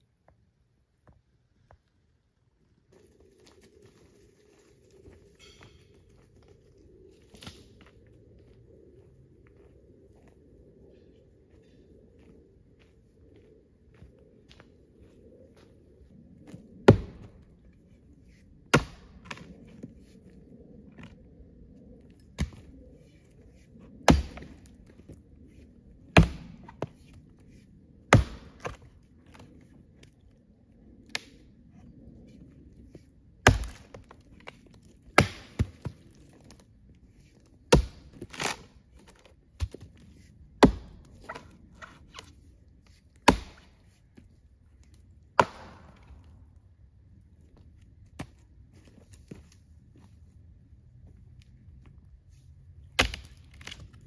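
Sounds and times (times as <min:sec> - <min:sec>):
axe chopping into dead tree: 0:16.9 - 0:17.4, 0:18.8 - 0:19.5, 0:24.0 - 0:24.6, 0:26.2 - 0:26.9, 0:28.1 - 0:28.8, 0:33.4 - 0:34.1, 0:35.2 - 0:36.0, 0:37.7 - 0:38.6, 0:40.6 - 0:41.4, 0:43.2 - 0:43.8, 0:45.4 - 0:46.1, 0:53.0 - 0:53.8.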